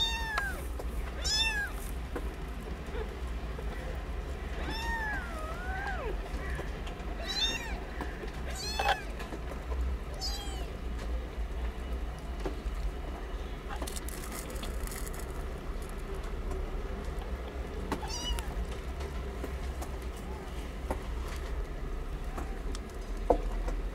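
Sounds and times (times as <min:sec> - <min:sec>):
kittens mewing: 0:00.0 - 0:01.9, 0:02.9 - 0:09.2, 0:10.1 - 0:10.8, 0:18.0 - 0:18.6
rustle: 0:00.0 - 0:11.1.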